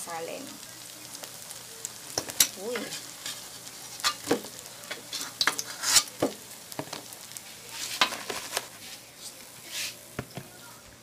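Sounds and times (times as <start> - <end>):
oil sizzling in a pan: 0.0 - 11.0
metal ladle scraping a pan: 2.4 - 6.2, 7.8 - 8.9.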